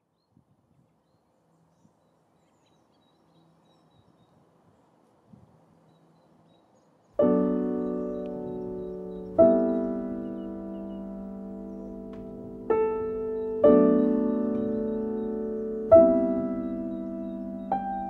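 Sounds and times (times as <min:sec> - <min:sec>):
piano chord: 0:07.2 - 0:18.0.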